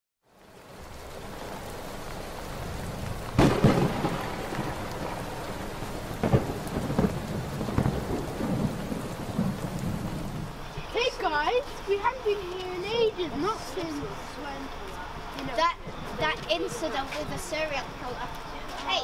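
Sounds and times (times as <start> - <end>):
steady rain: 0.2 - 19.0
thunder cracks: 2.3 - 10.6.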